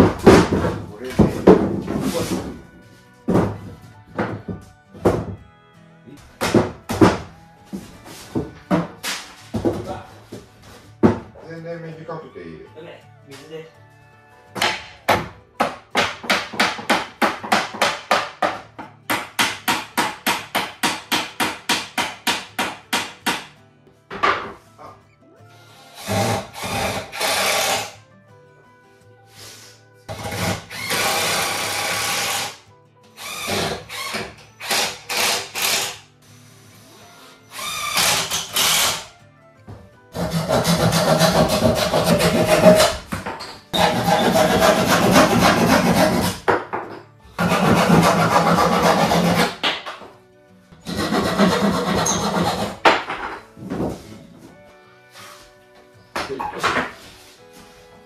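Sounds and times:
hand saw cutting wood: 0:25.8 - 0:28.0, 0:30.1 - 0:32.6, 0:33.2 - 0:36.0, 0:37.6 - 0:39.1, 0:40.1 - 0:43.1, 0:43.7 - 0:46.5, 0:47.4 - 0:49.8, 0:50.8 - 0:53.1.

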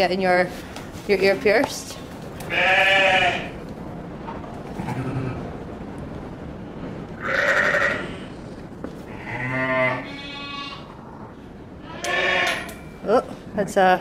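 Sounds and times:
sheep bleating: 0:09.1 - 0:10.9.

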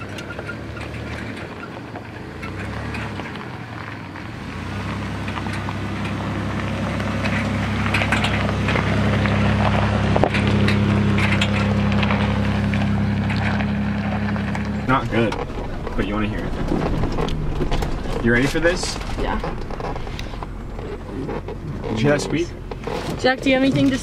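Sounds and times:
car engine hum: 0:00.0 - 0:24.0
tyres crunching on gravel: 0:00.0 - 0:24.0.

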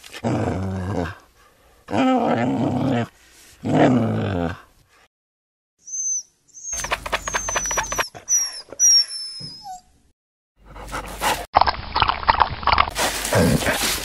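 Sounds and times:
dog whimpering: 0:05.9 - 0:10.0
dog sniffing or panting: 0:06.7 - 0:08.0, 0:10.6 - 0:11.5.

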